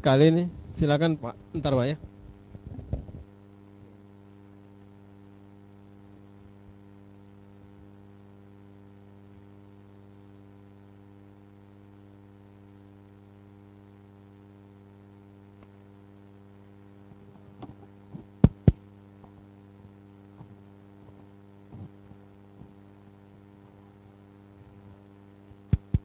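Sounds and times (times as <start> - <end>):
electrical mains hum: 0.0 - 26.0
sharp pops: 18.4 - 18.8.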